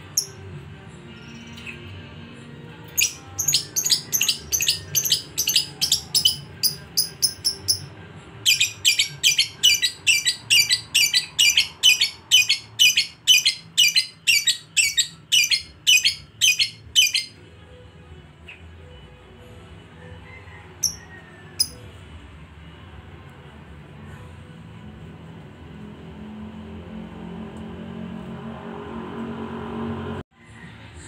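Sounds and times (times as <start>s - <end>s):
lovebird chattering: 3.0s - 7.9s, 8.5s - 17.3s.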